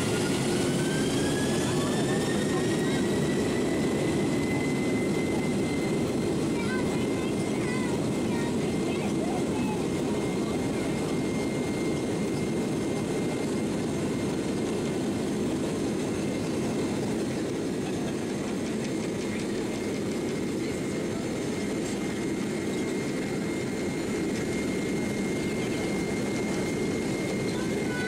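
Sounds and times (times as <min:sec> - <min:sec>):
faint high engine whine: 0:00.0 - 0:28.0.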